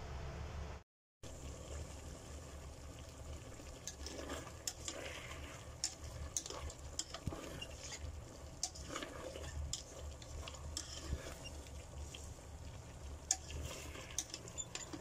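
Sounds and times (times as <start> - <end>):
utensil clicking and scraping pan: 3.8 - 12.2, 13.2 - 15.0.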